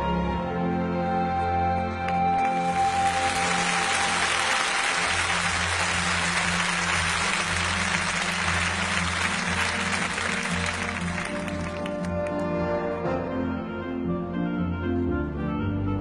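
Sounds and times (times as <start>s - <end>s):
audience applauding: 2.3s - 12.4s.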